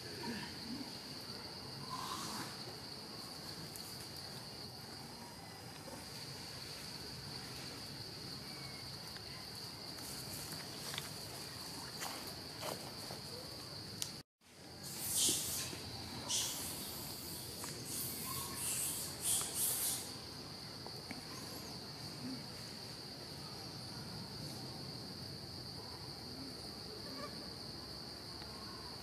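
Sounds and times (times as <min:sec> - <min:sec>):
insects droning: 0:00.0 - 0:29.0
faint hiss: 0:13.3 - 0:24.8.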